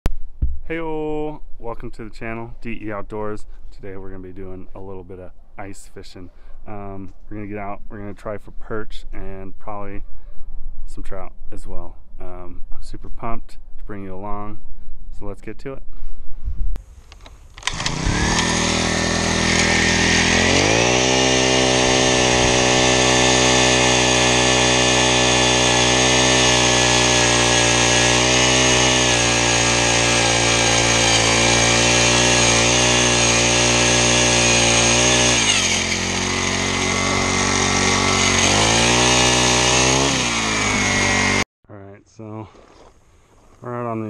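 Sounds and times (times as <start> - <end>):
ice auger engine drilling: 17.6 - 41.4.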